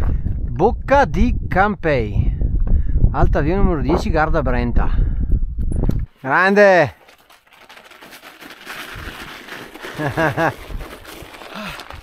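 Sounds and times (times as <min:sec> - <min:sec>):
crunching crinkling noise: 0:06.0 - 0:12.0.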